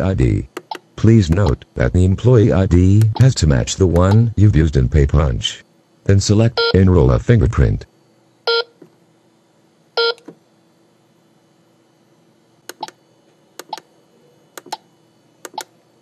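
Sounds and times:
keypad button clicks: 0.6 - 1.6, 4.0 - 4.3, 12.7 - 13.0, 13.6 - 13.8, 14.6 - 14.8, 15.4 - 15.7
time clock beeping: 0.7 - 1.6, 3.0 - 4.3.

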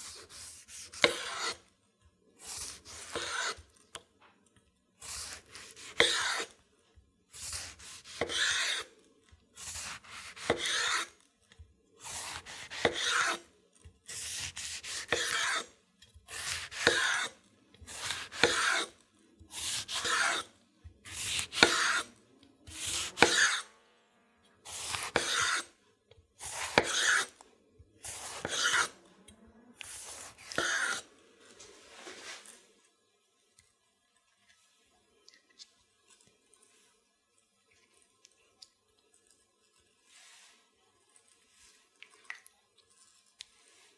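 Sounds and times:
knife sawing through tomato: 0.0 - 1.7, 2.4 - 3.8, 5.0 - 6.6, 7.3 - 8.9, 9.6 - 11.2, 12.0 - 13.5, 14.1 - 23.7, 24.7 - 25.8, 26.4 - 27.4, 28.0 - 29.0, 29.8 - 31.1.

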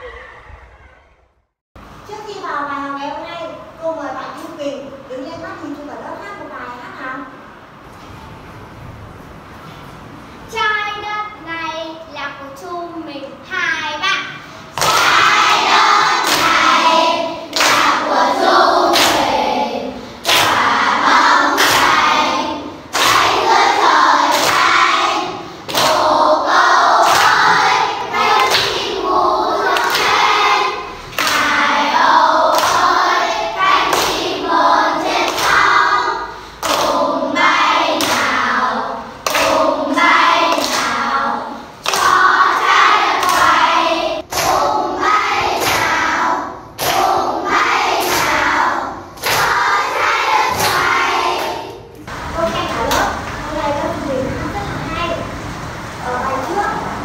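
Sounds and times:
children singing in unison: 14.8 - 51.9.

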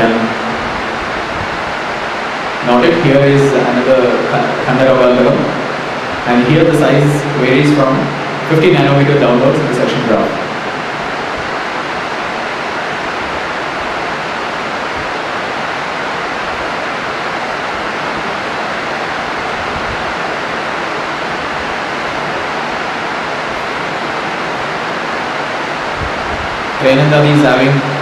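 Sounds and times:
steady background hiss: 0.0 - 28.0.

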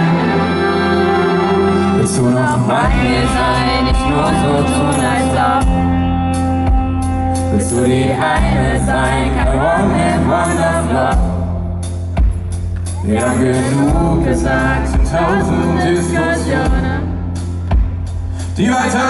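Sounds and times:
person singing: 0.0 - 6.0, 7.4 - 11.4, 12.9 - 17.4
acoustic guitar: 0.0 - 19.0
drums: 0.0 - 19.0.

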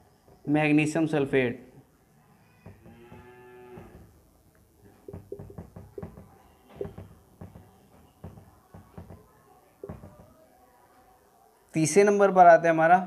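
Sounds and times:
marker squeaking on whiteboard: 5.0 - 10.4.

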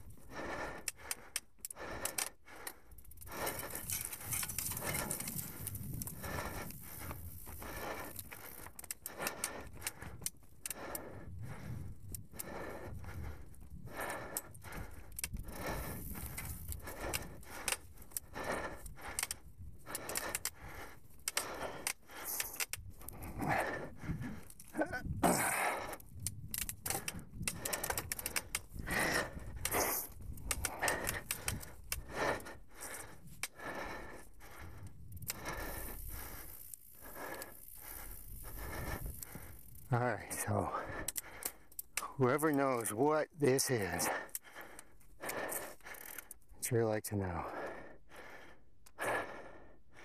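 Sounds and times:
bike rattling over bumps: 3.3 - 10.4.

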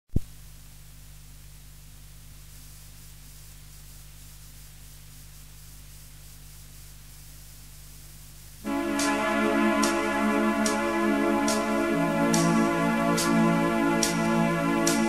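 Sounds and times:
low electrical hum: 0.2 - 15.0
recording hiss: 0.2 - 15.0
band music: 8.7 - 15.0.

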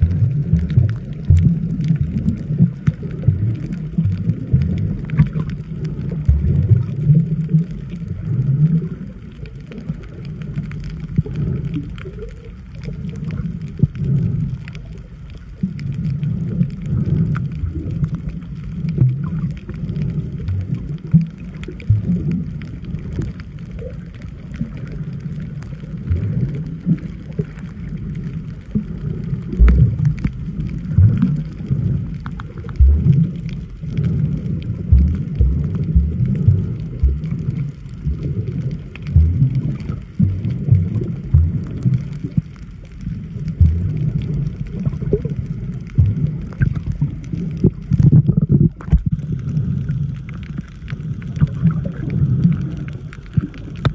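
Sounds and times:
faint clicks and crackles: 0.0 - 53.9
underwater rumbling and sloshing: 0.0 - 53.9
irregular thumps: 32.8 - 34.0, 34.8 - 38.3, 39.0 - 42.0, 43.5 - 45.0, 45.8 - 46.8.

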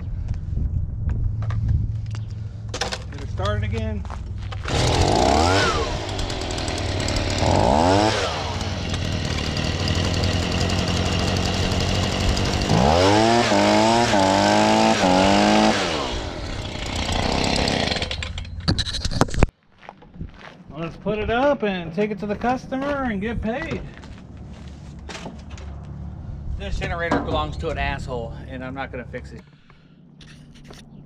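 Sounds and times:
leaf blower engine revving: 4.6 - 18.4.

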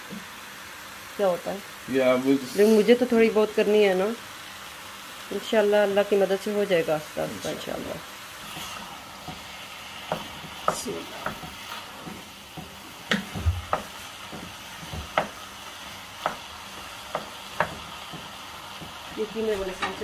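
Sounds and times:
meat sizzling in a pot: 0.0 - 20.0
wooden spoon knocking pot: 10.1 - 15.4, 16.2 - 19.1.

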